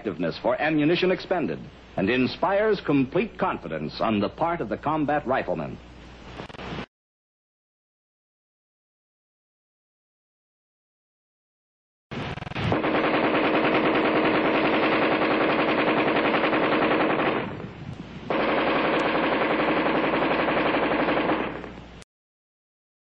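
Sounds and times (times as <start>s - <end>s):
automatic rifle bursts: 12.7s - 17.5s, 18.3s - 21.8s.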